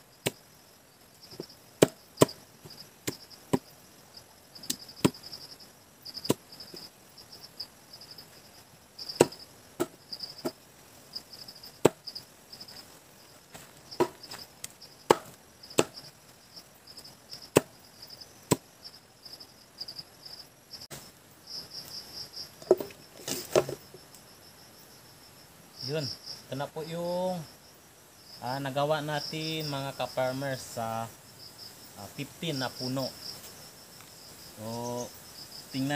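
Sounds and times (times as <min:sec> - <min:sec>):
crickets chirping: 0:00.0 - 0:35.9
sharp chopping strikes: 0:01.8 - 0:02.4, 0:09.1 - 0:10.6, 0:11.8 - 0:12.0, 0:15.1 - 0:16.0, 0:17.5 - 0:17.8, 0:18.5 - 0:18.7.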